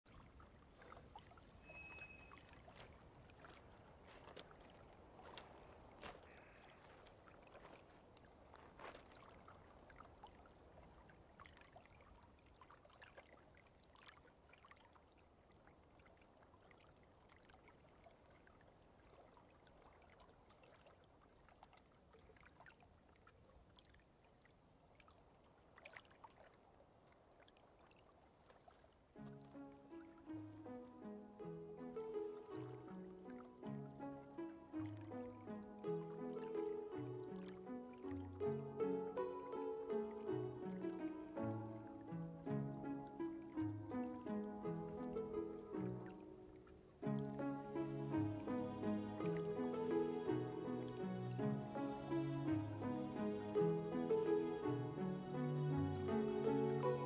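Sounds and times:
small splashes: 0.0s - 44.5s
water lapping at pebbly shore: 0.0s - 53.3s
short high note: 1.6s - 2.4s.

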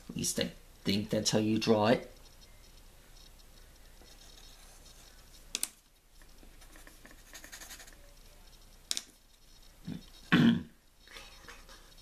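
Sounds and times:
pencil scratching on paper: 4.0s - 5.4s, 6.2s - 8.8s.

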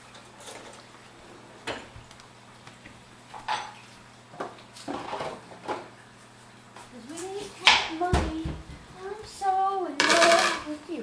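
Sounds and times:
dishes and utensils clattering: 3.4s - 3.8s.

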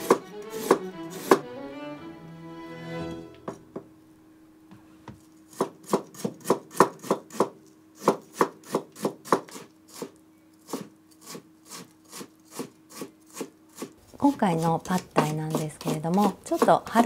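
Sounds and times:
knife chopping on cutting board: 0.0s - 1.4s, 5.6s - 9.6s, 14.5s - 17.0s.

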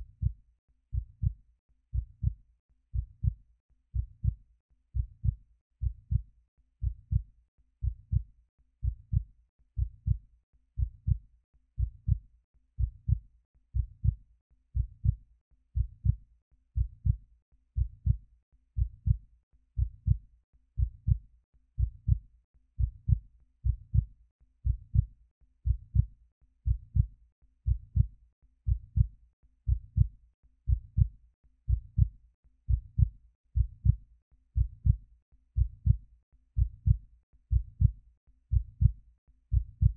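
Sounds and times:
heartbeat: 0.0s - 3.4s, 4.0s - 4.4s, 5.0s - 10.2s, 10.8s - 11.2s, 11.8s - 12.2s, 12.8s - 13.2s, 13.8s - 14.2s, 14.8s - 15.2s, 15.8s - 16.2s, 16.8s - 17.2s, 17.8s - 18.2s, 18.8s - 19.2s, 19.8s - 20.2s, 20.8s - 21.2s, 21.8s - 22.2s, 22.8s - 27.1s, 27.7s - 28.1s, 28.7s - 29.1s, 29.7s - 30.1s, 30.7s - 31.1s, 31.7s - 34.0s, 34.6s - 36.0s, 36.6s - 39.9s.

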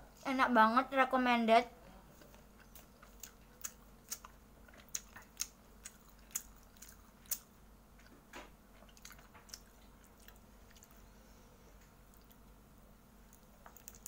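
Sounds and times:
person chewing crunchy food: 2.2s - 11.1s, 12.0s - 12.6s, 13.2s - 14.0s.

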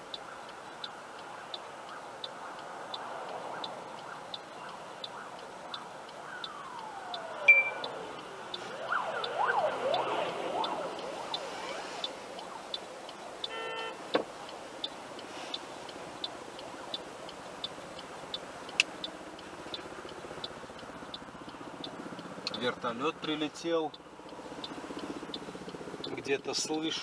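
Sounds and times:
car turn signal ticking: 0.0s - 27.0s
fire engine siren wailing: 2.9s - 14.0s
short beep: 7.5s - 7.8s.

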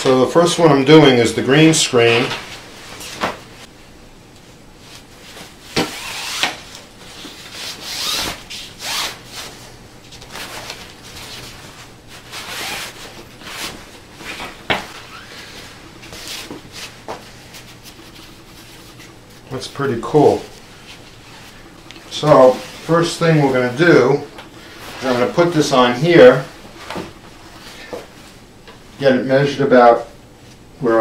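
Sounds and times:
fabric rustling: 4.8s - 28.4s.

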